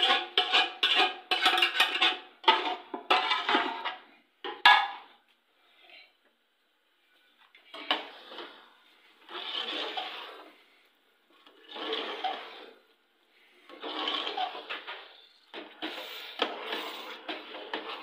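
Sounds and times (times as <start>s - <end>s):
metal spoon scraping a pot: 0.0s - 4.1s, 7.7s - 10.8s, 11.4s - 18.0s.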